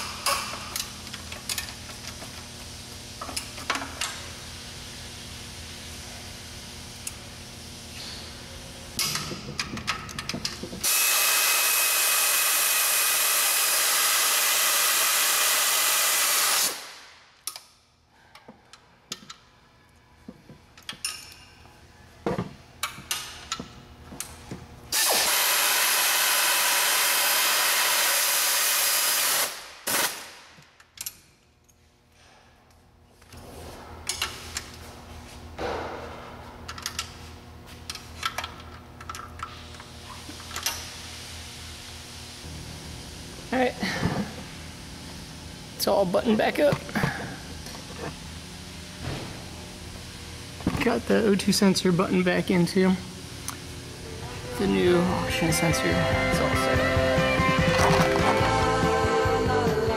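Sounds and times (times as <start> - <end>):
power tool running: 10.8 - 17.0, 24.9 - 30.2, 54.4 - 59.7.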